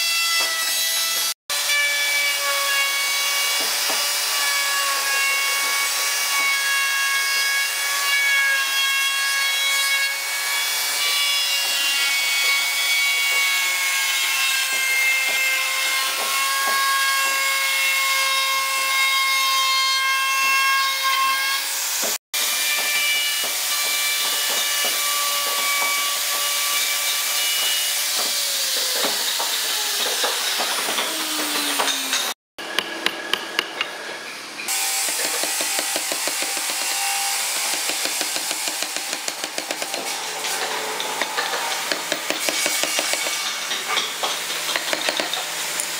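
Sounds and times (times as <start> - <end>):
wood router whining: 22.4 - 32.7.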